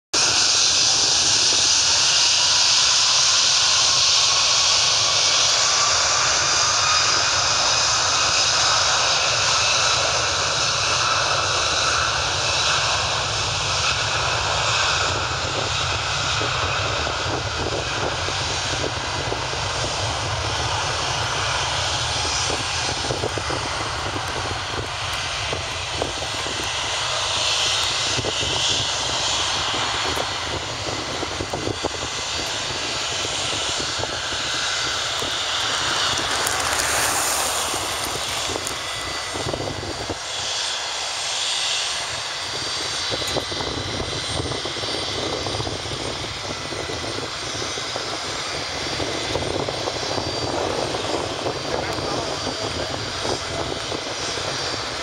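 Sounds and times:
jet engine rumble: 0:00.1 - 0:55.0
high fan whine: 0:48.9 - 0:55.0.

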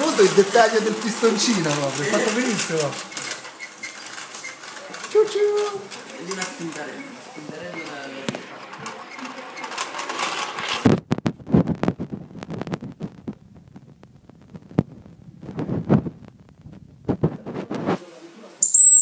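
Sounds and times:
model locomotive clicking: 0:00.0 - 0:10.9.

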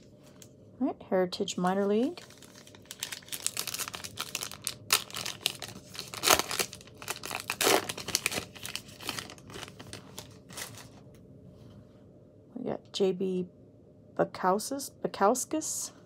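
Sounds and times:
wrapper crackling being torn open: 0:02.0 - 0:10.9.

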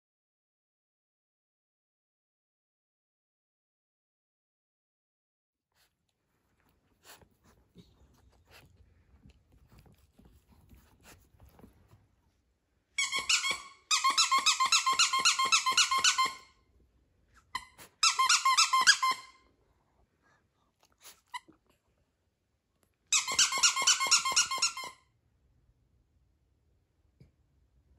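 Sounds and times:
squeaky dog toy squeaking: 0:13.0 - 0:16.6, 0:17.4 - 0:19.4, 0:23.1 - 0:25.0.

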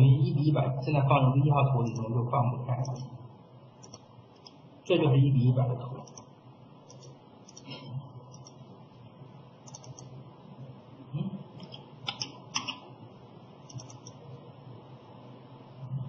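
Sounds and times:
faint background hum: 0:00.0 - 0:16.0
keyboard keystrokes: 0:09.7 - 0:10.1, 0:13.7 - 0:14.2
mouse clicks: 0:13.6 - 0:14.2.

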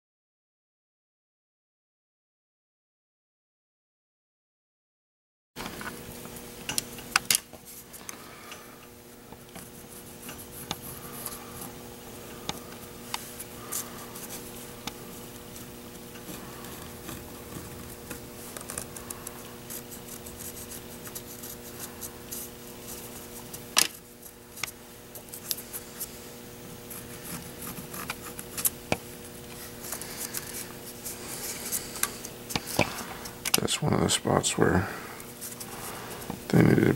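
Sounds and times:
steady low hum: 0:05.6 - 0:36.9
paper rustling: 0:29.5 - 0:33.4.

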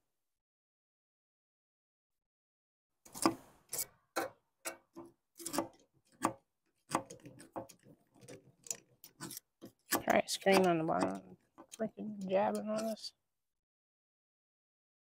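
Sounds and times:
irregular sharp clicks and knocks: 0:03.0 - 0:11.8.

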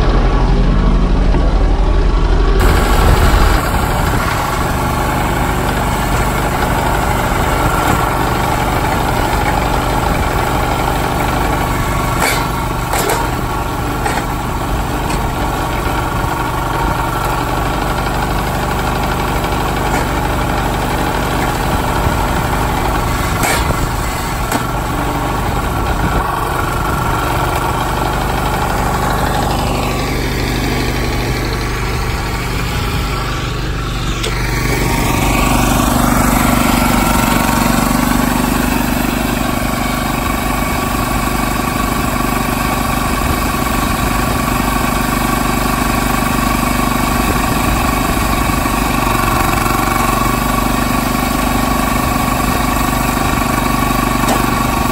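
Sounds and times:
petrol engine running steadily: 0:00.0 - 0:54.9
sharp crack: 0:07.3 - 0:17.9, 0:19.1 - 0:27.8.

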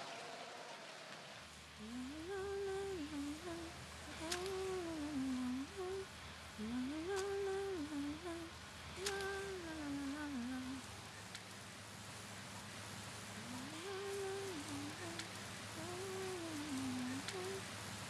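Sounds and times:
faint clicks: 0:00.1 - 0:11.6, 0:13.4 - 0:17.7
person humming a tune: 0:01.8 - 0:10.8, 0:13.4 - 0:17.6.

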